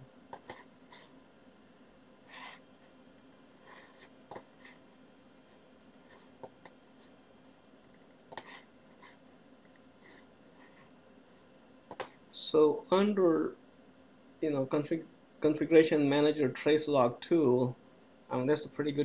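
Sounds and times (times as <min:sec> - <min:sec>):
faint steady hum: 0:00.0 - 0:19.0
computer mouse clicks: 0:07.8 - 0:08.6, 0:09.6 - 0:09.9.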